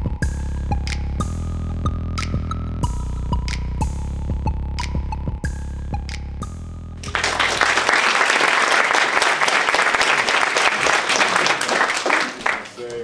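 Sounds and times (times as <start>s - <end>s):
electronic music with bass pulse: 0.0s - 7.0s
audience applauding: 7.0s - 13.0s.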